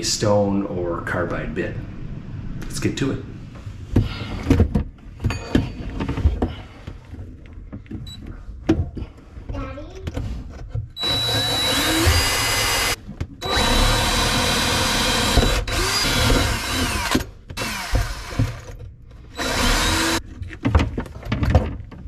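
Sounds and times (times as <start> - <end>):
cordless drill drilling stone: 11.0 - 18.7, 19.3 - 20.2.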